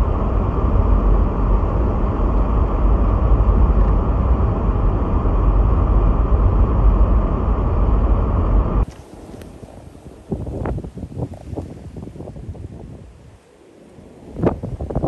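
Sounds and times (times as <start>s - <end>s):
car driving on snowy road: 0.0s - 9.9s.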